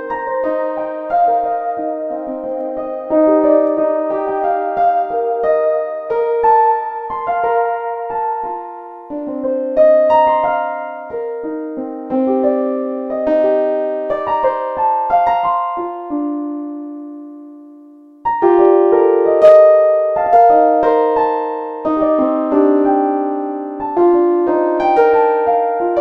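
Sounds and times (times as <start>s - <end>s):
keyboard melody: 0.0s - 26.0s.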